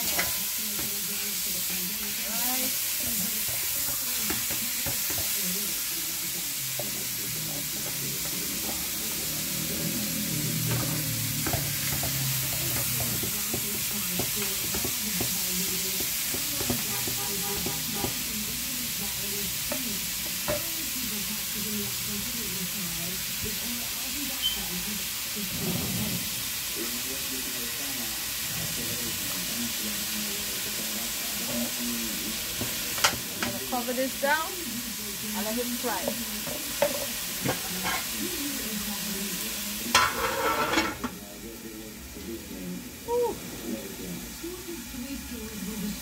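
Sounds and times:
meat sizzling in oil: 0:00.0 - 0:46.0
metal spoon scraping a pot: 0:39.9 - 0:41.0.

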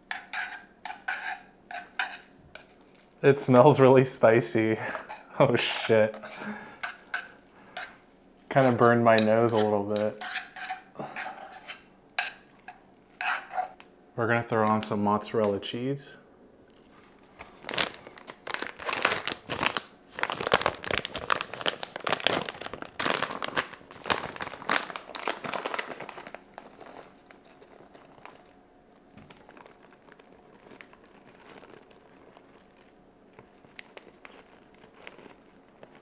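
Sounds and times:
plastic bag crinkling: 0:16.7 - 0:36.0.

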